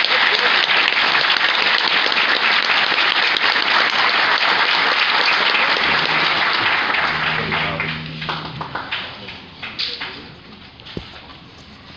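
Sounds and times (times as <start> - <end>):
audience applauding: 0.0 - 11.3
low held note: 5.7 - 11.9.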